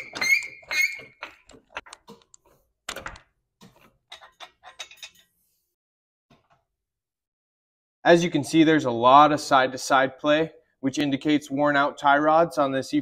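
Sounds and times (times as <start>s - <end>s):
floor jack squeak: 0.0s - 1.4s.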